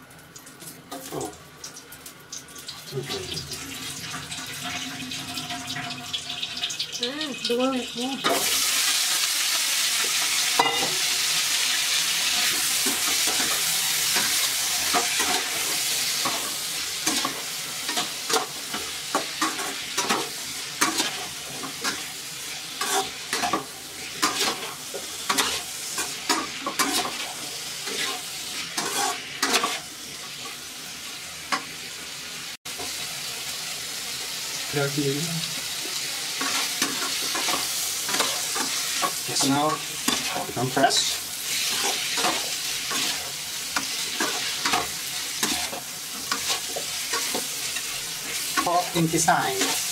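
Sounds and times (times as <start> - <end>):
meat sizzling in hot oil: 0.0 - 49.9
metal spatula scraping pan: 22.8 - 29.9, 36.4 - 49.9.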